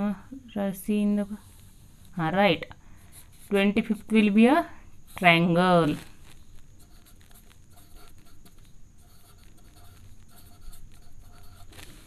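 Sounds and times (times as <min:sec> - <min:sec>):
pen scratching on paper: 0:03.1 - 0:04.4, 0:06.8 - 0:12.0.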